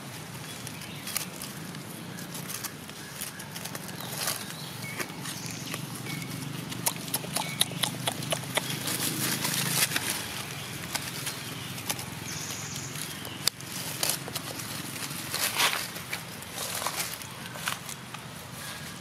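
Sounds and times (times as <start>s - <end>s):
dry leaves crackling and rustling: 0.0s - 19.0s.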